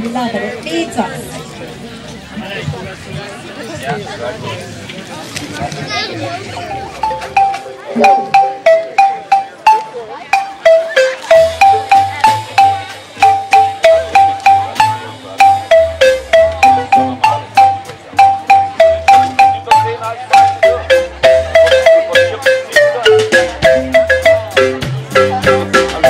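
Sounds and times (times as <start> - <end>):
marimba melody: 6.5 - 26.0.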